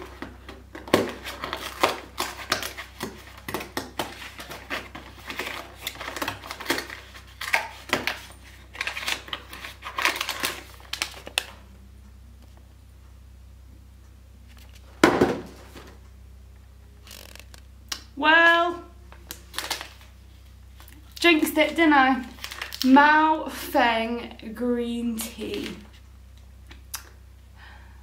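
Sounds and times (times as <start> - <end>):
paper sachet rustling: 1.1 - 11.4, 21.6 - 22.9.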